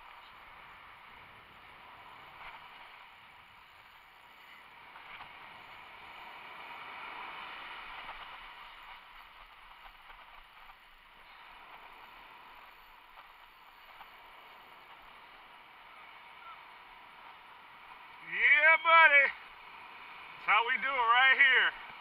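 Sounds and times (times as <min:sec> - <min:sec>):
ocean surf breaking on beach: 0:04.7 - 0:10.7.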